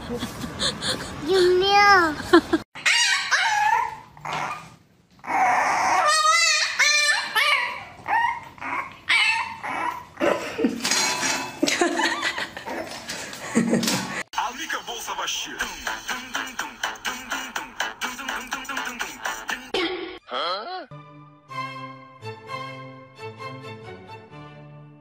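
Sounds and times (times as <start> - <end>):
puppy howling: 2.8 - 10.2
puppy yipping and whining: 2.8 - 10.2.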